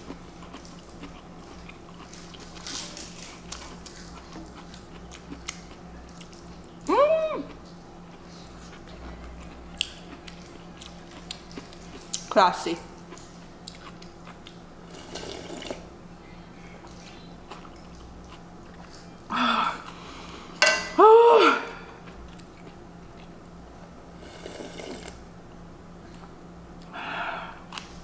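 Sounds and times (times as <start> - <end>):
woman sighing ahh: 19.3 - 19.9, 21.0 - 22.0, 26.9 - 27.6
breathy exhales: 26.9 - 27.7.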